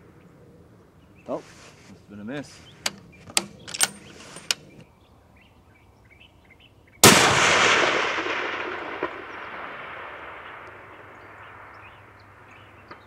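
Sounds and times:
rifle shot with long echo: 7.0 - 13.0.

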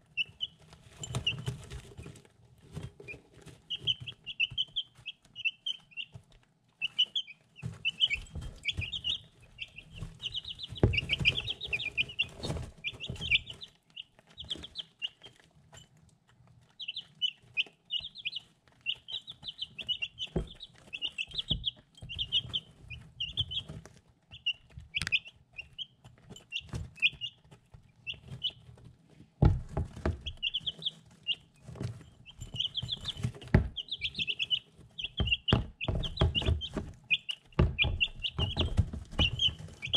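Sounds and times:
chicks peeping: 0.0 - 39.9
beaks knocking on a dish: 7.7 - 13.6, 32.3 - 39.9.

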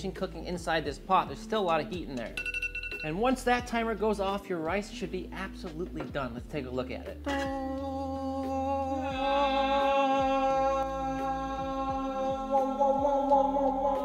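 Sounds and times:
sustained sung choir chord: 8.0 - 14.0.

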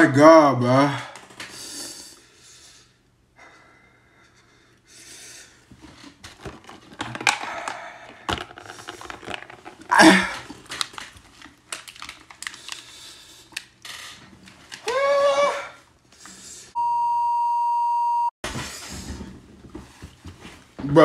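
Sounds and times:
man breathing hard: 1.0 - 5.7, 7.2 - 9.2
clicks and rustling from handling: 5.8 - 12.9.

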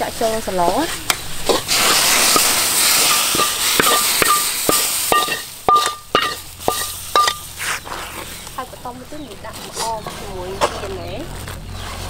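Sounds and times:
wok scraping: 0.0 - 12.0
food hissing into boiling soup: 0.8 - 5.7, 6.4 - 8.6
metal spatula tapping pan rim: 2.4 - 7.5.

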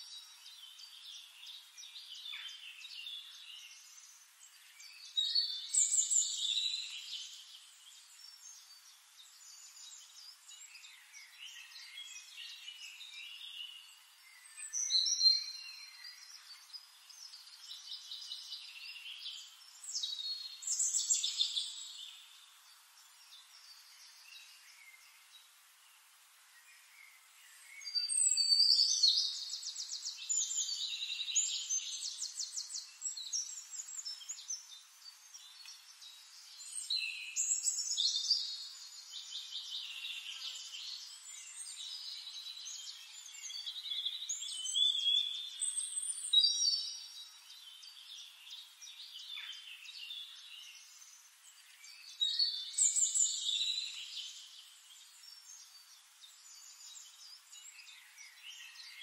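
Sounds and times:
songbirds chirping and trilling: 0.0 - 59.0.

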